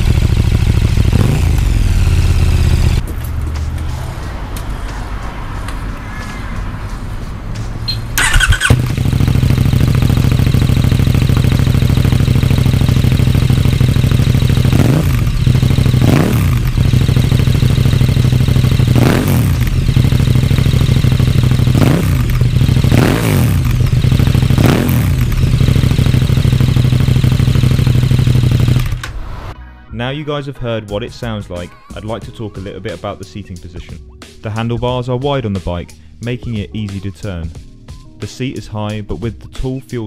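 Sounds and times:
motorcycle engine starting and idling: 0.0 - 3.8, 7.9 - 29.2
motorcycle engine revving: 0.0 - 4.1, 8.1 - 29.5.

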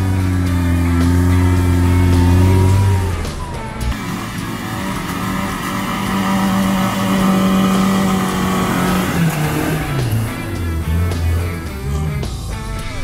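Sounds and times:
suv engine under load: 0.0 - 12.6.

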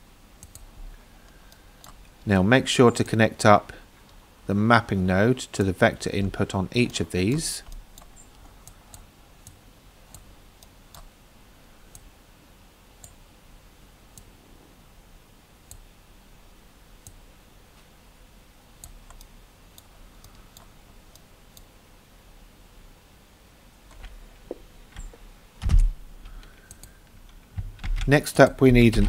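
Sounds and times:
faint computer mouse clicks: 0.4 - 2.0, 18.8 - 21.7, 26.3 - 27.4.

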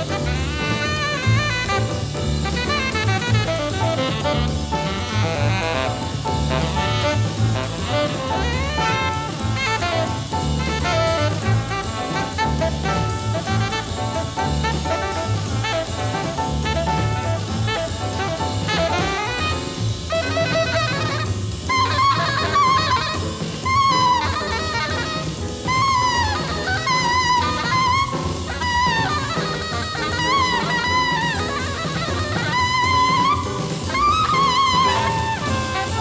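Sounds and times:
horn solo with bending notes: 0.0 - 36.0
jazz band playing: 0.0 - 36.0.

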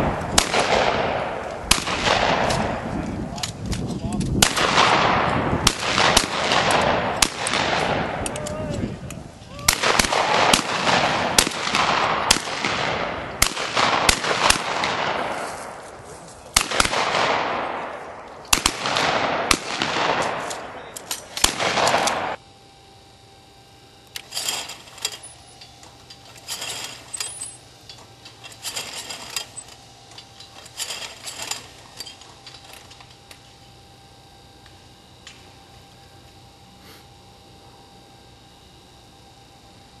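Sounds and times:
shotgun fire with echo: 0.0 - 2.9, 4.4 - 8.2, 9.7 - 15.8, 16.6 - 22.4.

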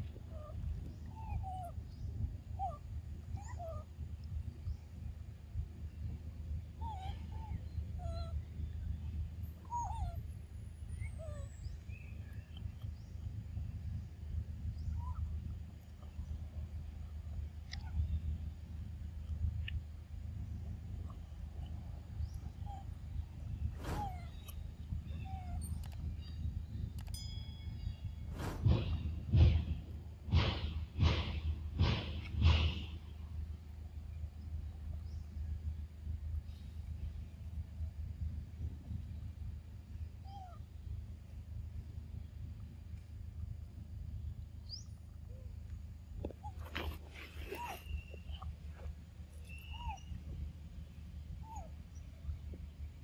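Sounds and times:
steady low rumble: 0.0 - 53.0
faint bird chirps: 5.8 - 16.6, 46.4 - 53.0
wavering animal chirps: 49.5 - 50.2.

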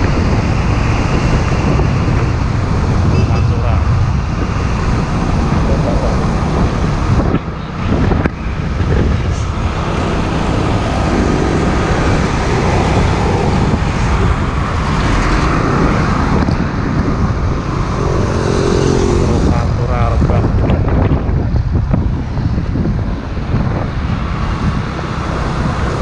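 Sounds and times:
road traffic rumble: 0.0 - 26.0
wind buffeting microphone: 0.0 - 26.0.

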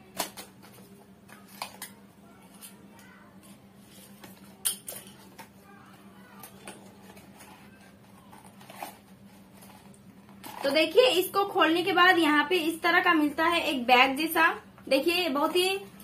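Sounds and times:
crackles and sharp clicks of packing: 0.0 - 5.6, 6.2 - 10.8.

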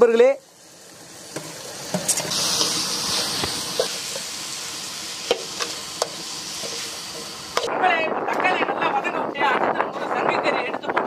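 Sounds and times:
tomatoes sizzling in hot oil: 0.0 - 7.7
metal spoon scraping pan: 2.0 - 4.4, 5.2 - 7.7.

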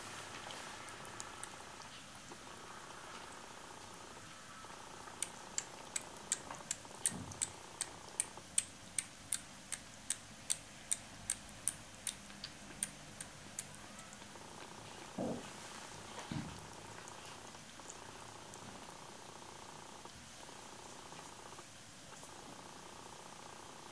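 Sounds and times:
light evenly spaced clicks: 5.1 - 13.9.

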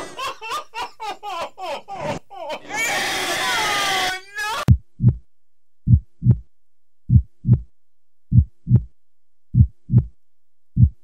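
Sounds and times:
heartbeat thumps: 4.7 - 6.5, 7.1 - 7.7, 8.3 - 10.2, 10.8 - 11.0.

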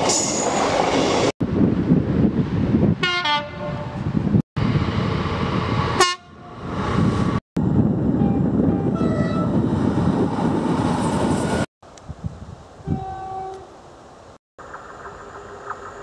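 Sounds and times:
diesel locomotive approaching: 0.0 - 11.7
train passing with rail noise: 0.0 - 12.0, 12.7 - 16.0
train horn blast: 3.0 - 4.0, 6.0 - 6.5, 12.8 - 13.7
short train horn notes: 12.8 - 13.7.

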